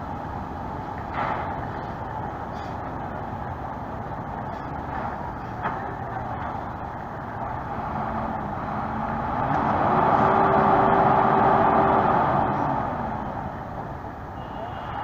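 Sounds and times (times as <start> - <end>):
truck diesel engine revving: 2.9 - 14.2.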